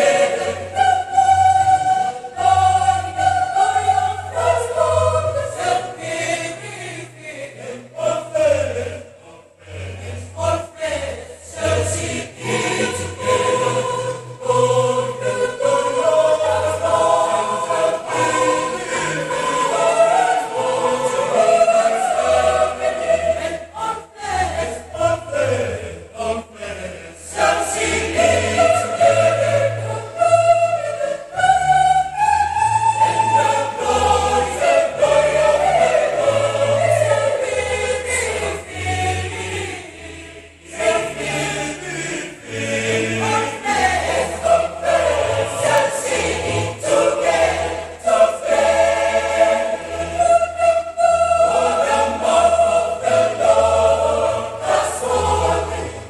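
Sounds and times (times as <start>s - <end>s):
mixed choir singing: 0.0s - 56.0s.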